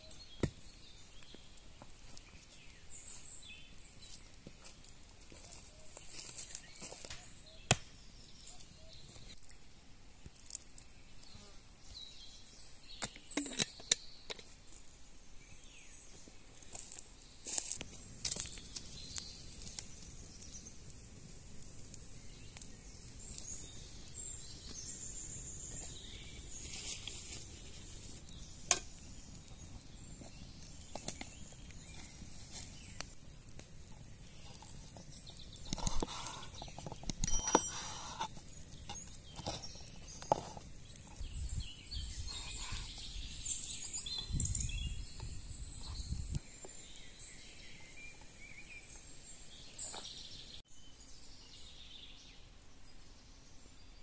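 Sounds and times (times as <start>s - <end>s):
forest ambience: 0.0s - 54.0s
birds chirping: 5.3s - 9.6s, 10.6s - 52.5s.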